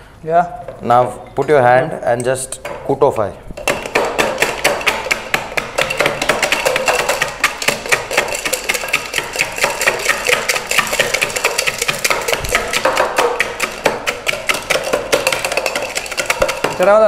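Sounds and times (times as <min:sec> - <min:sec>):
muddlers pounding in shakers: 0:03.6 - 0:17.0.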